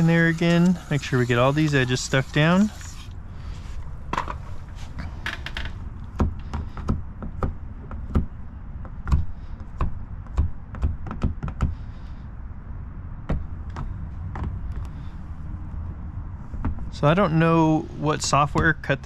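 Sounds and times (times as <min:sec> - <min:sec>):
pump sprayer hiss: 0:00.0 - 0:03.1.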